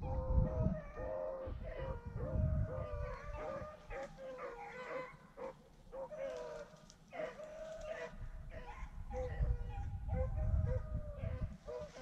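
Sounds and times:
hounds baying: 0.0 - 12.0
low microphone rumble: 8.2 - 11.6.

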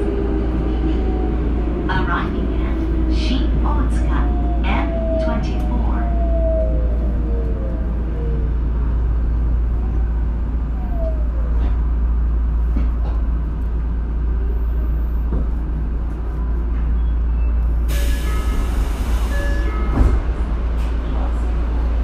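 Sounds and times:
subway train rumble: 0.0 - 22.0.

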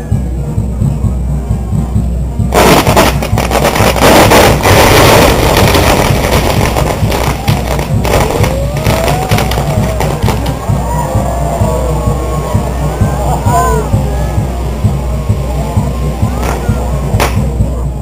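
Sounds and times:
fireworks crackling and popping: 2.5 - 10.9, 13.7 - 17.8.

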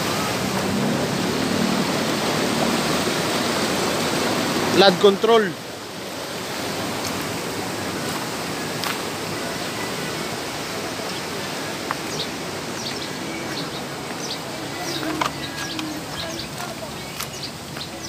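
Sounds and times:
water rushing through canal: 0.0 - 18.0
high bird chirps: 12.1 - 18.0.

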